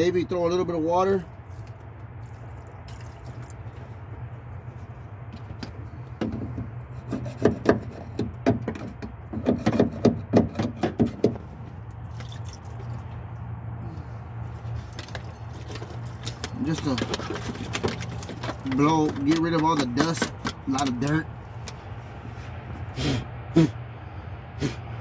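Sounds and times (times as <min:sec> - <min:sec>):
sharp metal knocks and clicks: 0:05.4 - 0:11.5, 0:14.9 - 0:21.8.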